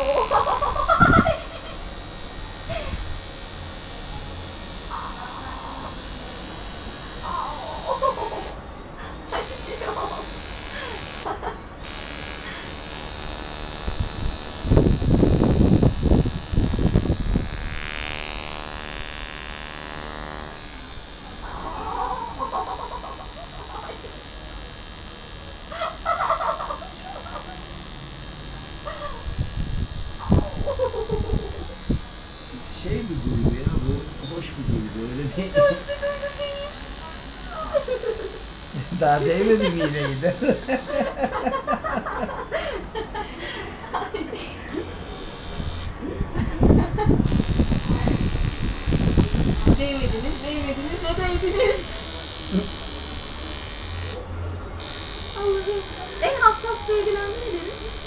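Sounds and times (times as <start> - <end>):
tattoo machine buzzing: 0.0 - 41.6, 44.7 - 46.1, 47.0 - 58.0
squeaky vocal sounds: 4.9 - 5.9.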